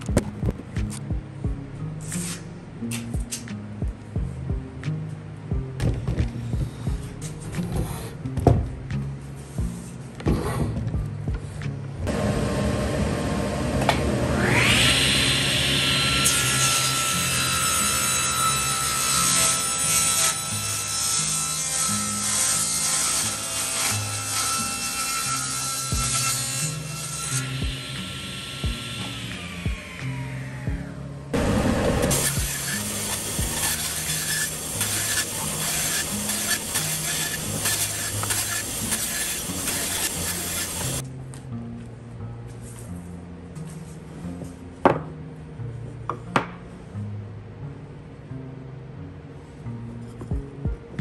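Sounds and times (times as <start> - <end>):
background music with bass line: 0.0 - 12.1, 39.7 - 51.0
background music: 0.0 - 51.0
table saw cutting wood: 12.1 - 30.8, 31.4 - 41.0.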